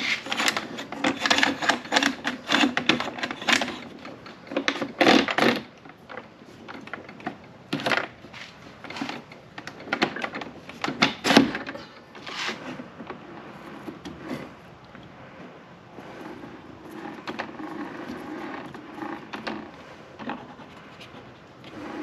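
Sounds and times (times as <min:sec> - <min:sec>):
metal clunks and scrapes: 0:00.0 - 0:06.0, 0:07.8 - 0:14.7.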